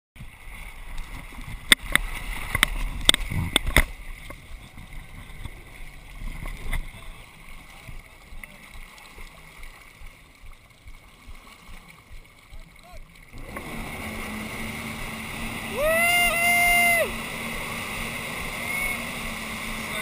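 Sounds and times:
water sloshing: 0:00.2 - 0:15.8
jet ski running: 0:00.2 - 0:20.0.

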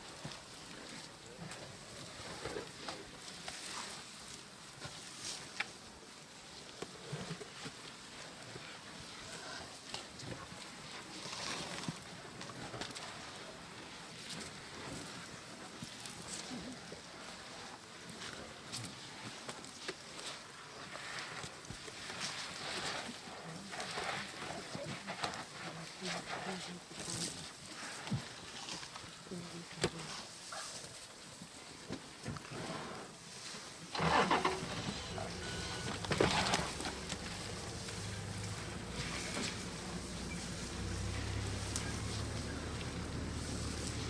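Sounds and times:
scraping of dry sand: 0:06.8 - 0:31.3, 0:32.4 - 0:44.0
elephant blowing dust from trunk: 0:32.5 - 0:44.0
vehicle engine idling: 0:34.0 - 0:44.0.

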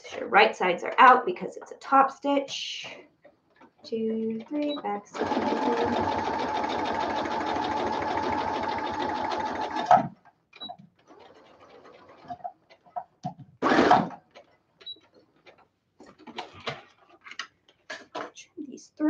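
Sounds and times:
sewing machine running: 0:04.3 - 0:10.0
light clicks and handling noises: 0:14.3 - 0:18.5.

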